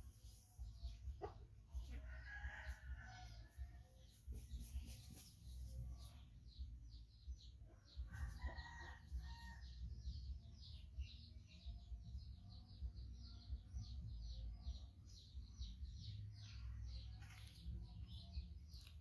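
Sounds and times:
small birds chirping: 0:00.0 - 0:19.0
rooster crowing: 0:08.1 - 0:09.6.

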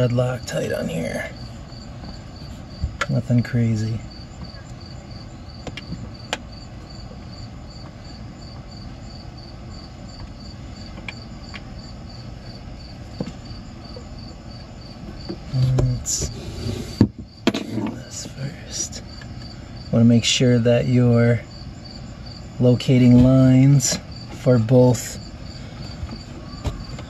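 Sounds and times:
insects chirping: 0:00.0 - 0:27.0
bump and rustle: 0:25.8 - 0:27.0.

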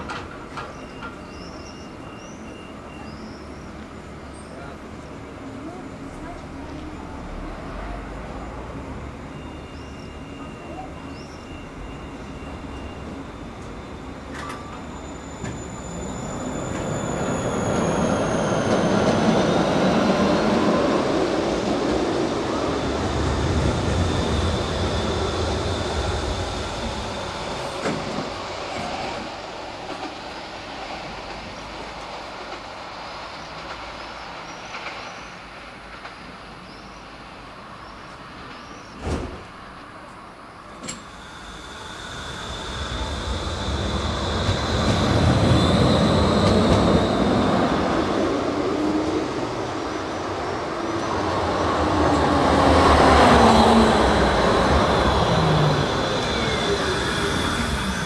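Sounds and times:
tram motor whine: 0:00.0 - 0:39.0, 0:39.6 - 0:58.0
tram wheels rumbling on rails: 0:00.0 - 0:58.0.

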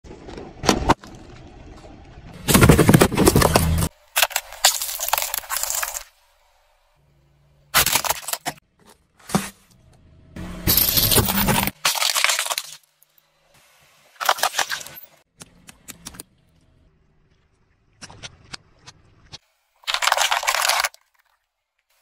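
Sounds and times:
car tyre crushing jars and cans: 0:02.4 - 0:06.1, 0:07.7 - 0:09.9, 0:10.6 - 0:13.1.

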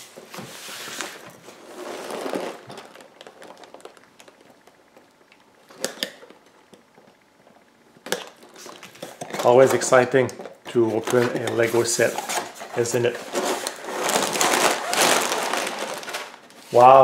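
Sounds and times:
cardboard box sliding and rubbing: 0:00.0 - 0:02.6.

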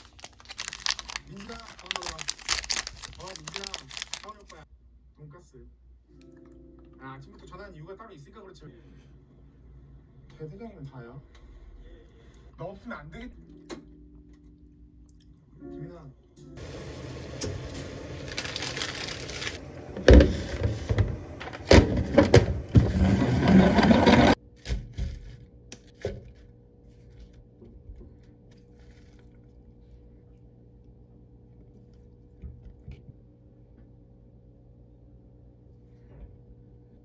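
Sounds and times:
pot of water boiling: 0:16.6 - 0:24.4
faint steady hum: 0:25.3 - 0:37.0.

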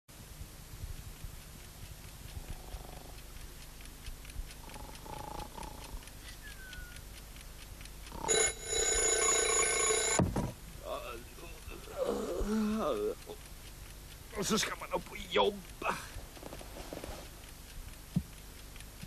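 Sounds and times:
clock ticking: 0:00.2 - 0:19.0
alarm clock ringing: 0:08.3 - 0:10.2.

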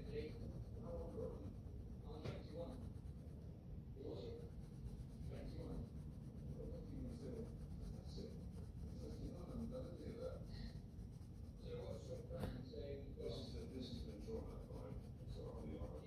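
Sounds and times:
pencil scratching on paper: 0:00.0 - 0:12.6, 0:13.2 - 0:16.0.

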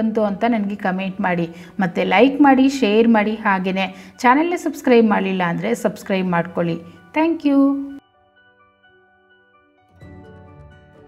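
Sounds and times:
faint background music: 0:00.0 - 0:08.1.

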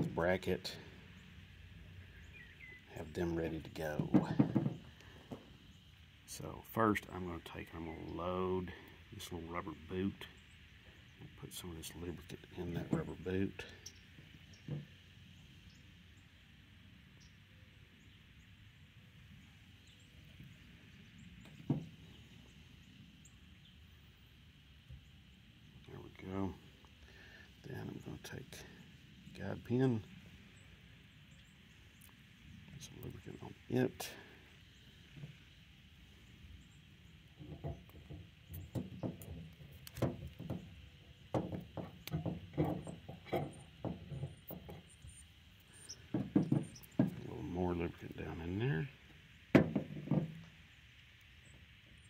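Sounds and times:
faint outdoor background: 0:00.0 - 0:52.0
dull knock on metal tailgate: 0:04.0 - 0:05.4, 0:21.6 - 0:22.0, 0:41.3 - 0:44.8, 0:46.1 - 0:47.2, 0:49.6 - 0:50.5.

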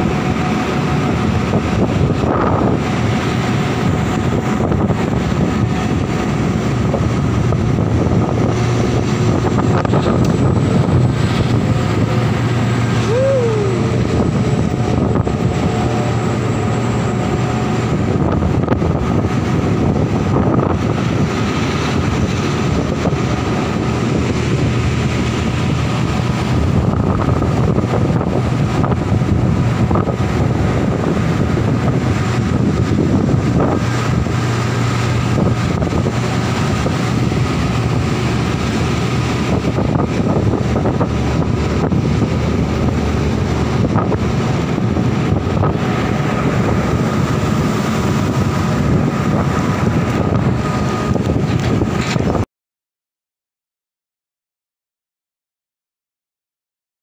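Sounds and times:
heavy diesel machinery droning: 0:00.0 - 0:52.4
wind buffeting microphone: 0:00.0 - 0:52.5.

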